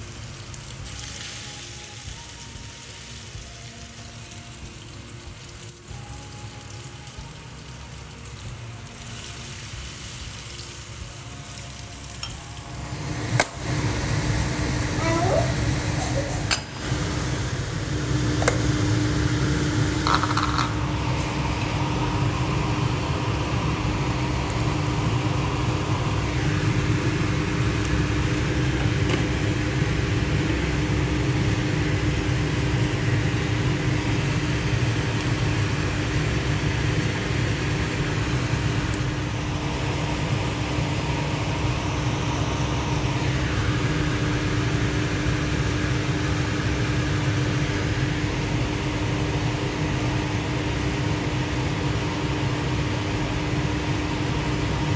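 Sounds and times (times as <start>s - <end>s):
mechanical fan hum: 0.0s - 54.9s.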